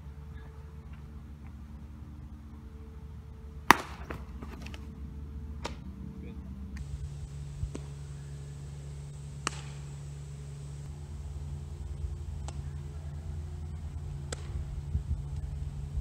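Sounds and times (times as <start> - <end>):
baseball popping into glove: 3.7 - 4.9, 5.6 - 5.9, 9.4 - 9.9
wind rumble on microphone: 11.6 - 16.0.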